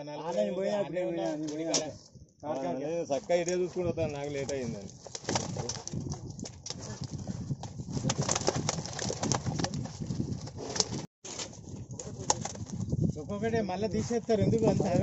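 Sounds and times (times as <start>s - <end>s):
fish flapping and slapping in a net: 4.8s - 12.9s.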